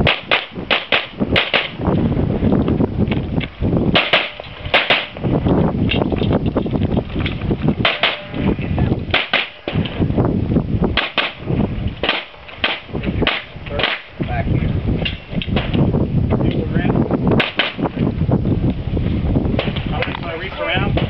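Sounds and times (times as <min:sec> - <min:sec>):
handgun shots: 0:03.9 - 0:05.2, 0:07.8 - 0:08.3, 0:09.1 - 0:09.9, 0:11.0 - 0:11.4, 0:12.0 - 0:14.0, 0:17.4 - 0:17.8.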